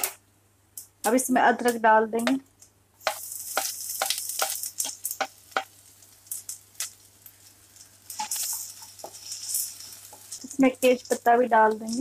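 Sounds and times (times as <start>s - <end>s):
ginger sizzling in hot oil: 3.0s - 12.0s
spatula scraping a pan: 8.1s - 11.2s.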